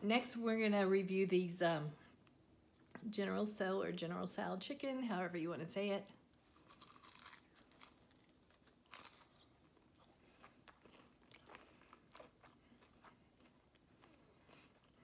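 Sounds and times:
crunching and chewing fried chicken: 0:06.4 - 0:15.0.

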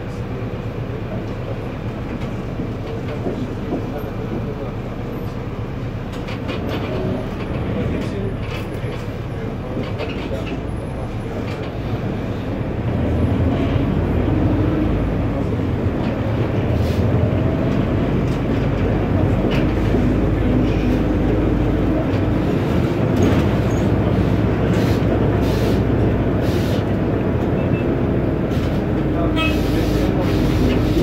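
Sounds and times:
bus engine rumbling: 0:00.0 - 0:31.0
road noise: 0:00.0 - 0:31.0.

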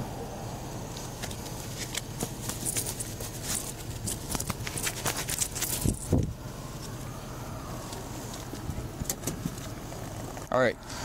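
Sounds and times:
clicks and rustles: 0:00.9 - 0:06.3.

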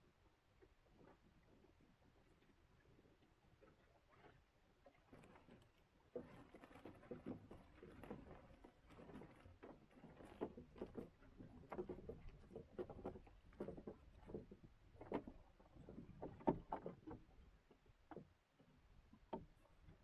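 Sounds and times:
waves slapping against boat hull: 0:03.8 - 0:20.0.

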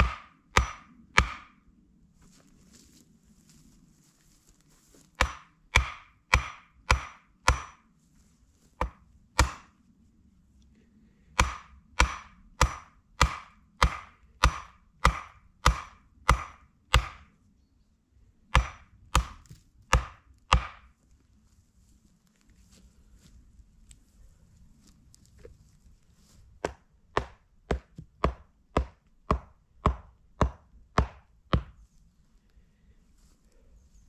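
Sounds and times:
axe chopping wood: 0:00.0 - 0:01.6, 0:05.2 - 0:07.8, 0:08.8 - 0:09.7, 0:11.4 - 0:17.3, 0:18.5 - 0:20.9, 0:26.6 - 0:31.8.

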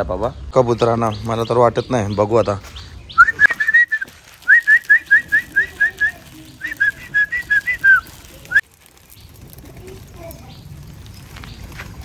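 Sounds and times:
person whistling sharp notes: 0:03.2 - 0:08.1.

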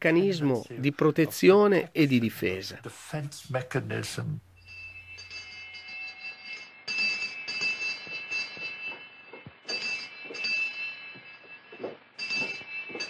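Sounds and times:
small bell ringing in bursts: 0:04.6 - 0:13.0.

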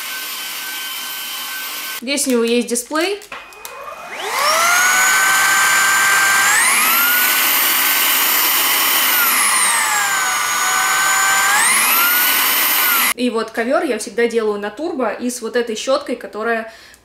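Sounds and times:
vacuum cleaner motor whine: 0:00.0 - 0:02.0, 0:03.3 - 0:13.2.

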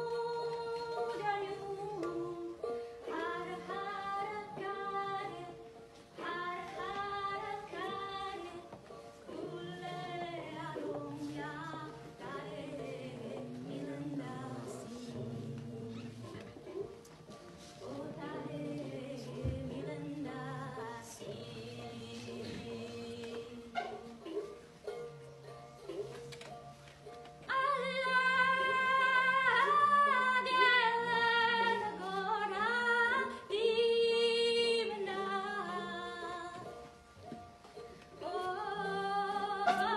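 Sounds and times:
woman singing unaccompanied: 0:00.0 - 0:17.0, 0:17.7 - 0:24.7, 0:27.4 - 0:37.0, 0:38.1 - 0:39.9
lower voices singing along: 0:06.2 - 0:16.8, 0:17.6 - 0:24.7, 0:27.5 - 0:36.8, 0:38.2 - 0:39.9.

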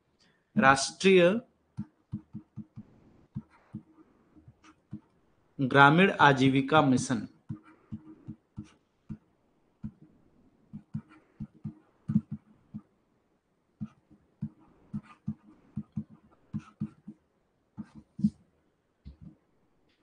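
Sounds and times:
stylus tapping on drawing tablet: 0:01.7 - 0:05.1, 0:07.4 - 0:10.1, 0:10.7 - 0:12.9, 0:13.8 - 0:17.2, 0:19.0 - 0:19.4.

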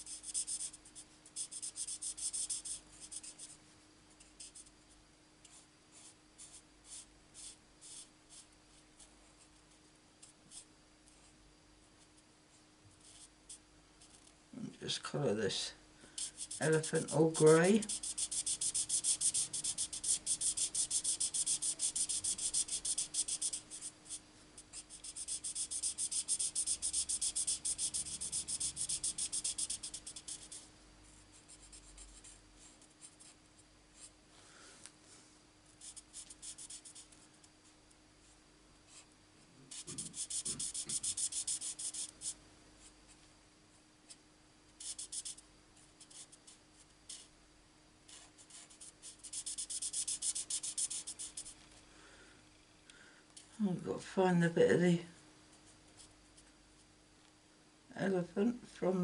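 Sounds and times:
marker scratching on card: 0:00.0 - 0:03.6, 0:16.2 - 0:30.7, 0:35.8 - 0:37.1, 0:39.7 - 0:42.4, 0:44.8 - 0:45.4, 0:46.0 - 0:47.3, 0:48.1 - 0:51.6.

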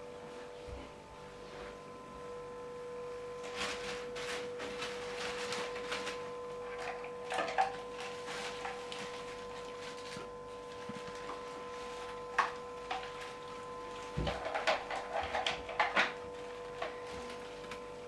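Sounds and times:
steady hum: 0:00.0 - 0:18.0
shoes and bags rustling: 0:03.4 - 0:06.3.

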